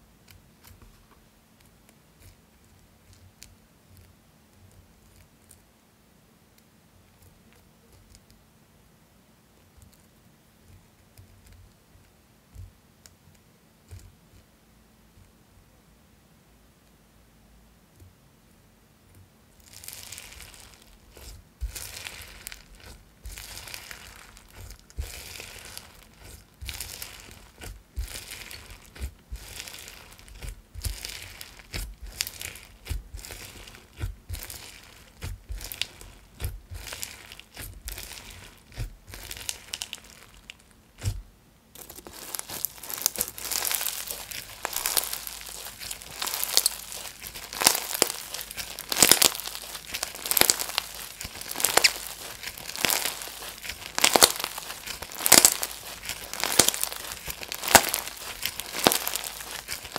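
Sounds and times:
slime crunching and crackling: 0:19.6 - 0:59.9.

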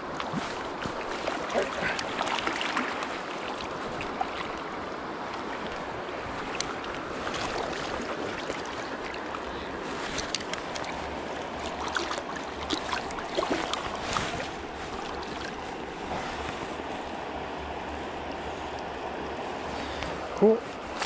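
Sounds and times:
stream water rushing: 0:00.0 - 0:21.0
water splashes: 0:00.0 - 0:21.0.

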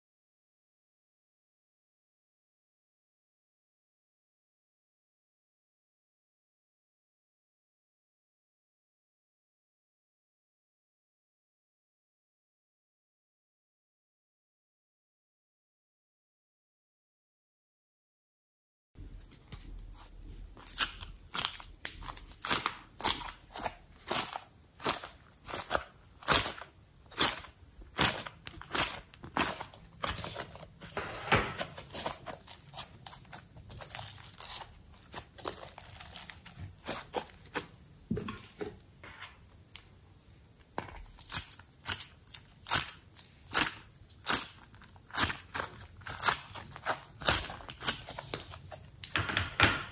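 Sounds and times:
slime crackling and popping: 0:20.6 - 0:31.0, 0:31.6 - 0:37.7, 0:40.9 - 0:49.2.

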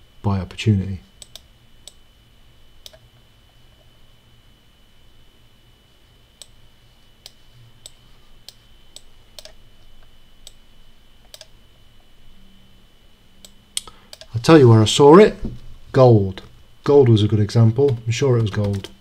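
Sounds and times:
faint high whine: 0:00.0 - 0:19.0
low hum: 0:00.0 - 0:19.0
computer mouse clicks: 0:01.2 - 0:02.0, 0:02.8 - 0:03.0, 0:07.2 - 0:09.6, 0:11.2 - 0:11.5, 0:13.4 - 0:14.3.

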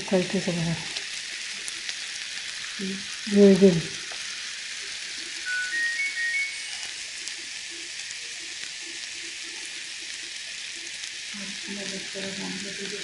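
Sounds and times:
food sizzling in a pan: 0:00.0 - 0:13.0
rising electronic beeps: 0:05.4 - 0:07.0.

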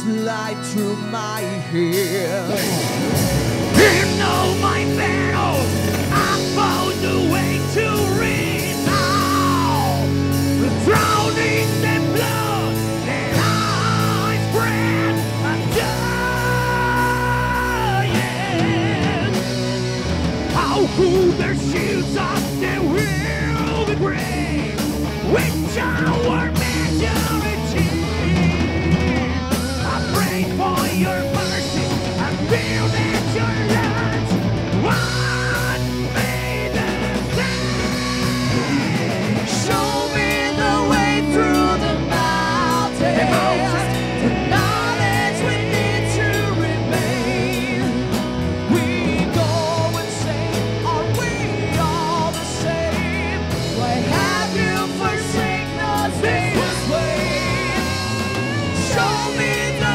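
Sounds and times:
metal band playing live: 0:00.0 - 0:59.9
vocalists singing: 0:00.0 - 0:59.9.

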